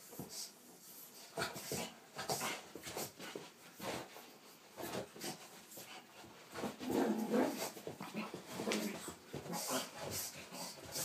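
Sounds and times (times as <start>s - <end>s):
dog breathing quickly: 9.0s - 11.0s.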